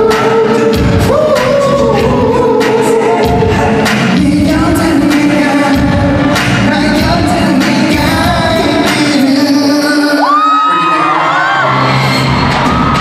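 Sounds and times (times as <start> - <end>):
dance beat: 0.0 - 9.8
man singing into microphone: 0.0 - 12.2.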